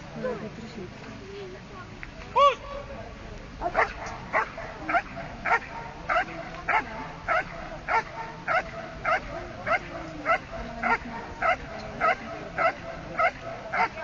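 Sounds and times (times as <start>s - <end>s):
dog barking: 3.7s - 14.0s.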